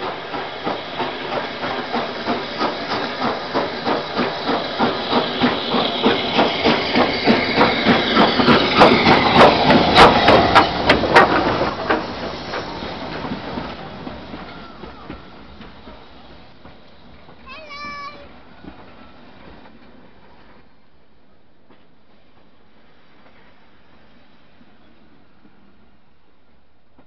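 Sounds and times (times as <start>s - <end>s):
sharp rail clicks: 0.0s - 17.4s
steam hissing: 0.0s - 20.6s
steam locomotive chuffing: 0.0s - 27.0s.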